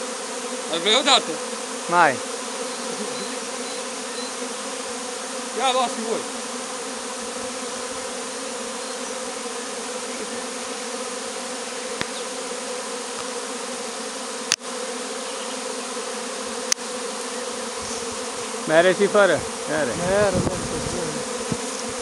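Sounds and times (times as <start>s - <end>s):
bees buzzing: 0.0s - 22.0s.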